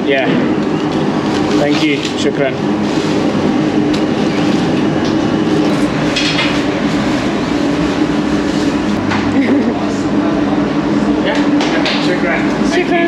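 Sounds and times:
bakery machinery drone: 0.0 - 13.0.

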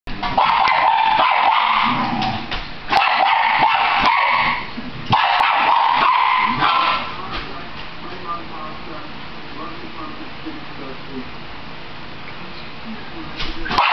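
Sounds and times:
dog barking and yipping: 0.3 - 7.2.

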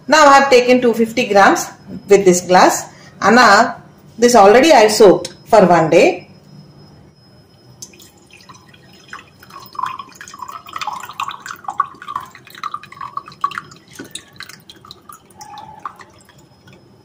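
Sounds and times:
water trickling into a steel mug: 7.8 - 17.0.

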